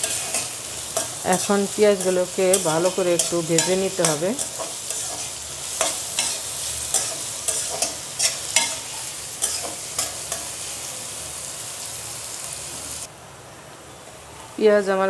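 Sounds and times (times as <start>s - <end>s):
metal spatula scraping a pan: 0.0s - 10.8s
onions sizzling in hot oil: 0.0s - 13.2s.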